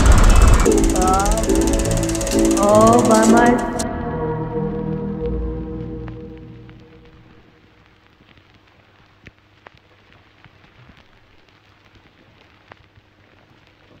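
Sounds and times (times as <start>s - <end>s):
record surface crackle: 0.0s - 3.9s, 4.8s - 14.0s
low hum: 0.0s - 7.9s.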